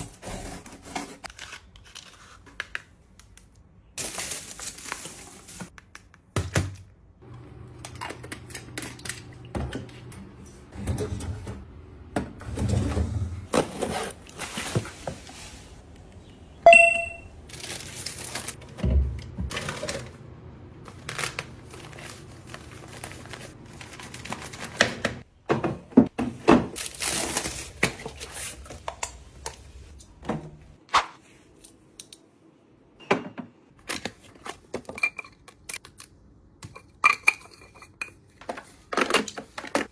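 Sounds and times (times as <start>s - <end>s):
paper packing rustling: 4.0s - 5.7s, 17.5s - 18.8s, 20.9s - 25.2s, 26.8s - 28.8s.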